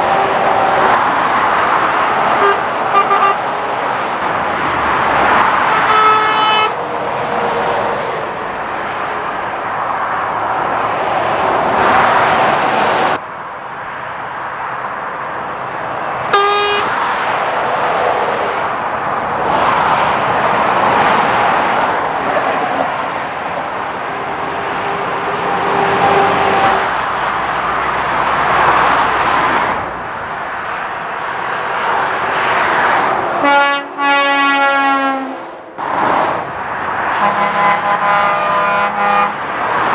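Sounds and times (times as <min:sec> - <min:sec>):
road traffic passing: 0:00.0 - 0:39.9
long horn blast: 0:02.4 - 0:03.4, 0:05.7 - 0:06.9, 0:16.3 - 0:17.0, 0:33.4 - 0:35.5, 0:37.2 - 0:39.4
vehicle horn toots: 0:02.4 - 0:03.4, 0:05.7 - 0:06.9, 0:16.3 - 0:17.0, 0:33.4 - 0:35.4, 0:37.1 - 0:39.4.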